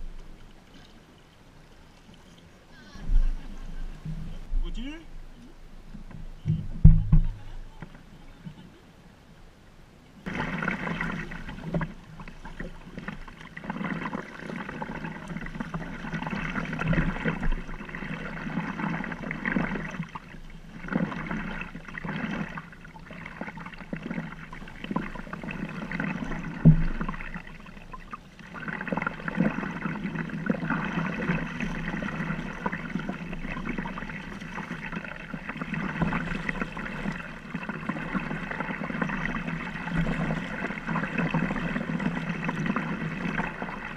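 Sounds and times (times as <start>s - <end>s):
water sloshing around kayak: 10.2s - 43.9s.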